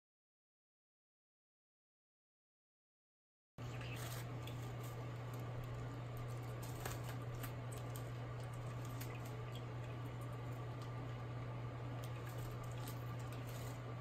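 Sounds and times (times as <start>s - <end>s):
steady low hum: 3.6s - 14.0s
water trickling and dripping: 7.6s - 13.5s.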